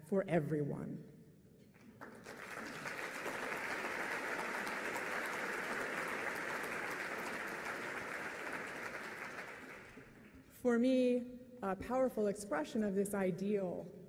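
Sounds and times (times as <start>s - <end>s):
large audience applauding: 1.8s - 10.4s.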